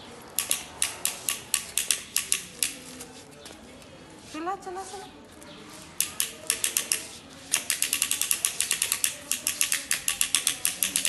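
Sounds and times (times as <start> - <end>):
push walker clicking: 0.4 - 3.0, 6.0 - 11.0.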